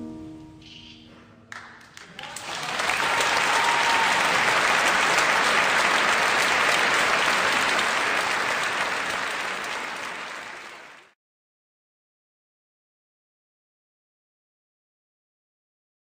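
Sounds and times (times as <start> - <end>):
audience applauding: 1.5 - 11.2.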